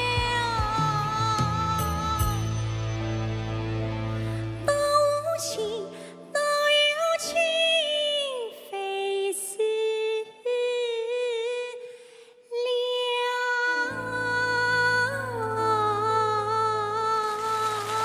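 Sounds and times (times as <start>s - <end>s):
woman singing opera-style: 4.7s - 18.0s.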